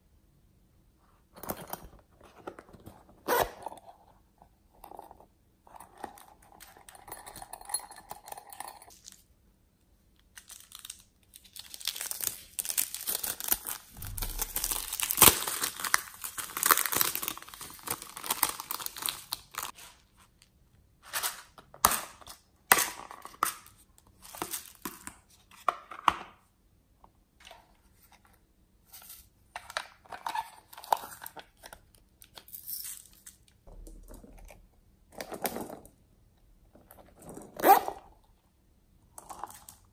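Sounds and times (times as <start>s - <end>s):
foam toys crinkling and tearing: 10.3s - 20.0s.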